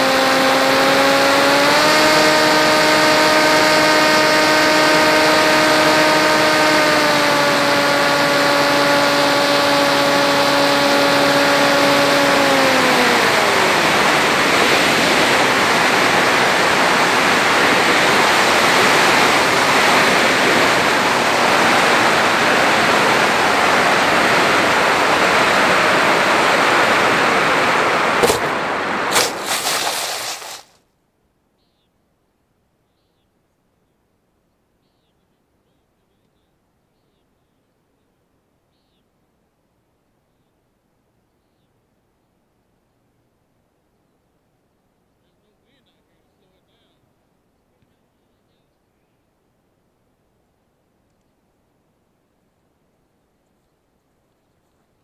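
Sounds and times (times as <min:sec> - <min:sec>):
electric motor and propeller whine: 0:00.0 - 0:30.8
knocks of landing in grass: 0:28.2 - 0:30.8.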